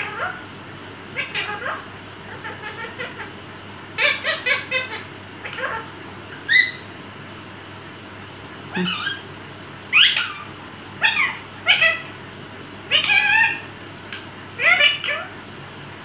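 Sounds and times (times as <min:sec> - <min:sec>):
parakeet squawking calls: 0:01.2 - 0:03.4, 0:04.0 - 0:06.9, 0:08.7 - 0:09.3, 0:09.9 - 0:12.1, 0:12.9 - 0:13.7, 0:14.6 - 0:15.4.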